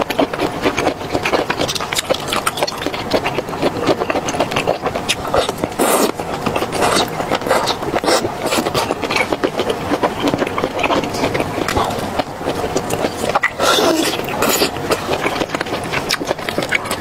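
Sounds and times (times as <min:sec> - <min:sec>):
wet chewing and mouth clicks: 0:00.0 - 0:17.0
loud slurps: 0:04.6 - 0:09.3, 0:13.0 - 0:15.4.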